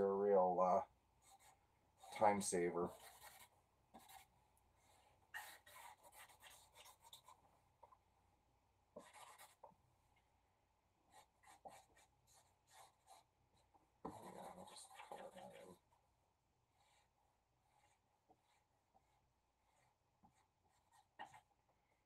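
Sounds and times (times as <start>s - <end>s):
marker rubbing on paper: 1.2s - 7.4s, 9.0s - 9.7s, 11.1s - 13.3s, 14.0s - 15.8s, 16.7s - 21.5s.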